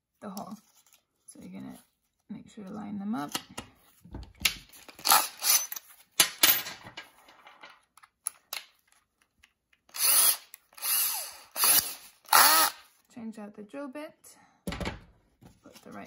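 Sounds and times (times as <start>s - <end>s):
drill chuck spinning: 4.9s - 5.8s, 9.9s - 12.9s
cordless drill running: 9.9s - 12.9s.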